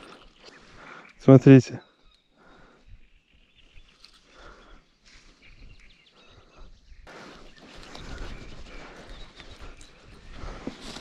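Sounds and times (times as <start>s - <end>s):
rustling handling noises: 10.5s - 11.0s.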